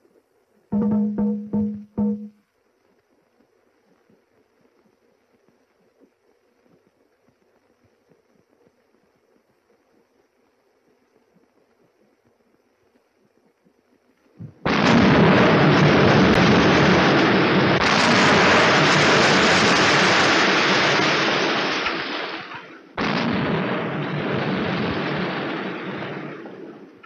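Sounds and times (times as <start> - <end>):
rock blast explosion: 14.4 - 26.7.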